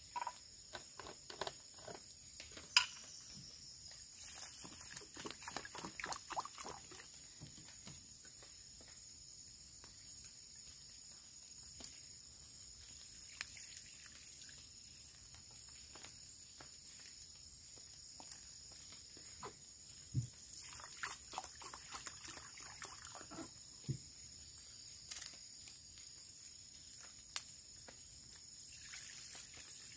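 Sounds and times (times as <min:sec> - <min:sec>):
high insect drone: 0:00.0 - 0:29.9
water glugging into pot: 0:04.3 - 0:07.2, 0:20.5 - 0:23.6.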